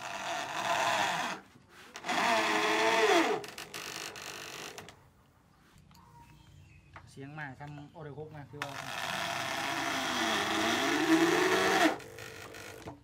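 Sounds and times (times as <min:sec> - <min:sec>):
cordless drill whining: 0:00.0 - 0:05.0, 0:08.6 - 0:13.0.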